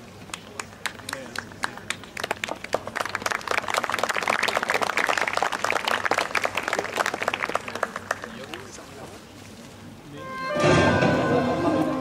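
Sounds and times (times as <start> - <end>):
audience applauding: 0.3 - 8.9.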